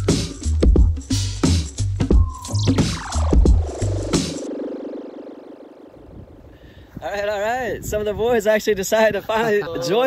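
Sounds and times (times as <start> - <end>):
electronic music with pulsing bass: 0.0 - 6.5
falling synth glide: 2.2 - 6.6.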